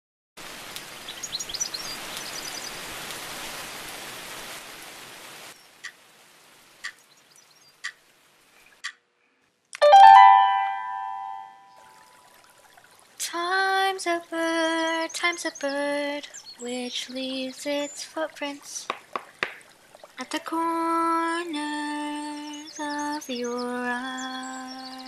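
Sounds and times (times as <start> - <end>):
bright chime ringing: 9.8 - 11.8.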